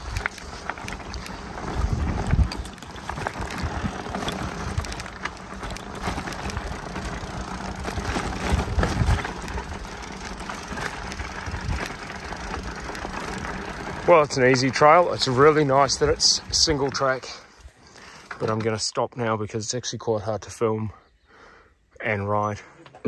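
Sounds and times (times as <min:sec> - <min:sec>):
wind buffeting microphone: 0:00.0 - 0:14.4
bike rattles and knocks: 0:00.0 - 0:19.0
bike tyres rolling on dirt: 0:00.0 - 0:19.0.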